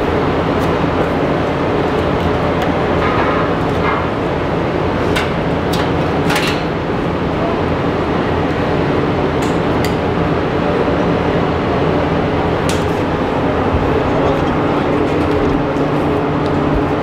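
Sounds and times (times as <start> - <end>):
workshop mechanical drone: 0.0 - 17.0.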